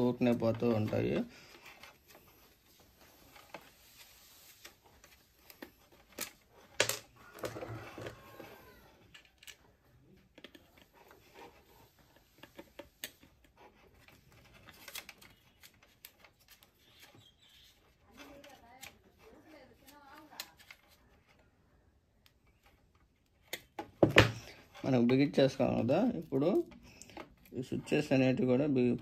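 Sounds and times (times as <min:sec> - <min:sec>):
screwdriver and plastic parts clicking: 0:04.9 - 0:11.6.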